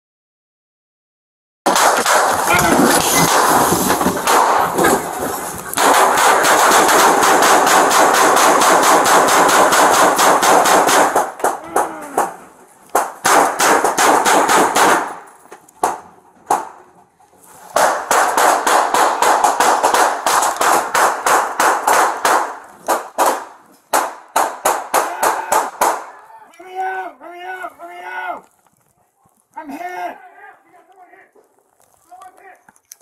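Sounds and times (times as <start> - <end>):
heavy gunfire volleys: 1.7 - 16.8, 17.8 - 26.1.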